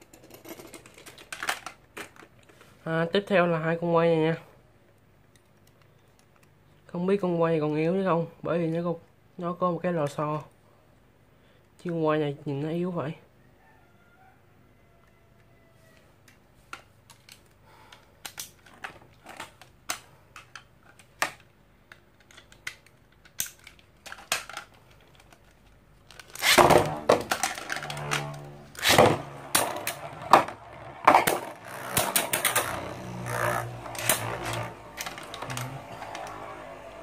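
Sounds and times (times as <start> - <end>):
plastic clicks of toys handled: 0.0 - 2.7, 4.8 - 6.8, 15.4 - 37.0
spinning tops whirring and clattering: 26.1 - 37.0.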